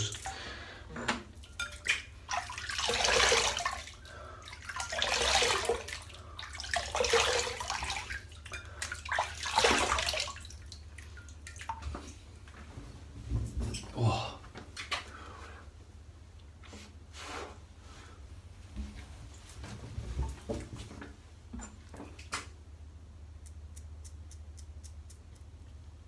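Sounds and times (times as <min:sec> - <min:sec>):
water splashing on face: 0:01.8 - 0:11.9.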